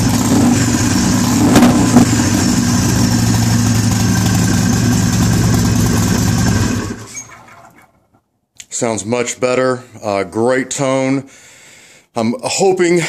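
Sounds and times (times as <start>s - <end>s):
motorcycle engine idling: 0.0s - 7.1s.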